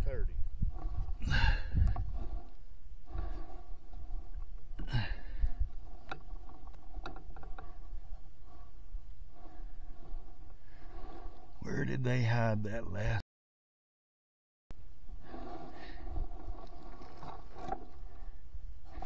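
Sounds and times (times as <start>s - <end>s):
wind rumble on microphone: 0.0s - 11.6s, 15.0s - 19.0s
breathy exhales: 1.2s - 3.8s, 4.8s - 5.7s.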